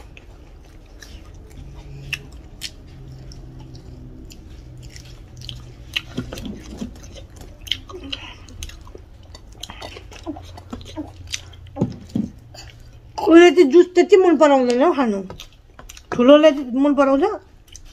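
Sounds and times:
person chewing food: 0.0s - 13.3s, 15.3s - 16.2s, 17.5s - 17.9s
mouth clicks and smacks: 0.2s - 12.9s.

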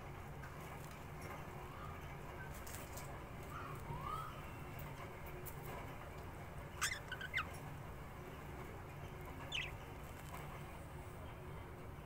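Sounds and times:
budgerigar chirping: 6.8s - 7.6s, 9.4s - 9.8s.

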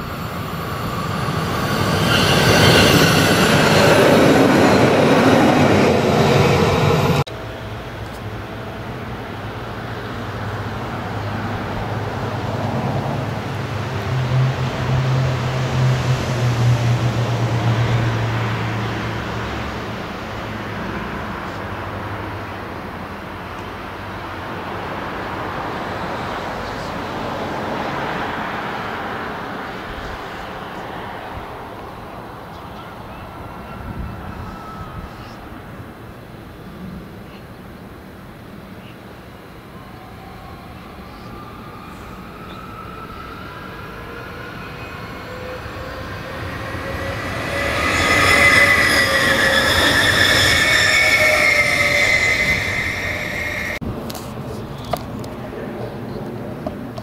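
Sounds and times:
train whine: 0.0s - 36.6s, 39.2s - 54.1s
train rolling noise: 0.0s - 37.0s, 39.2s - 57.0s
distant vehicles rushing: 41.1s - 56.9s.

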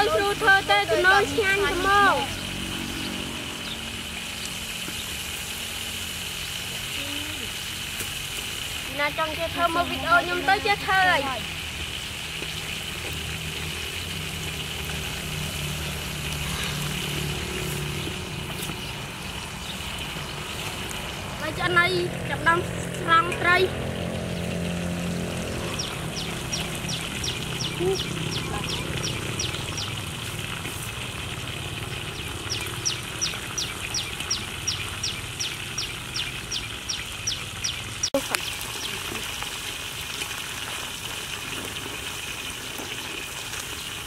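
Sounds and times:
fish sizzling in oil: 0.0s - 44.0s.

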